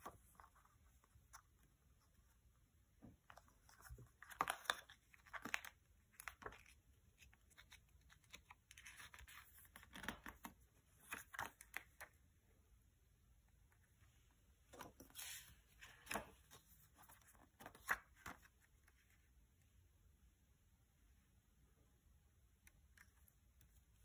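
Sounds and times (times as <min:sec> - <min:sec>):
paper rustling: 0:03.3 - 0:12.2, 0:14.7 - 0:19.2.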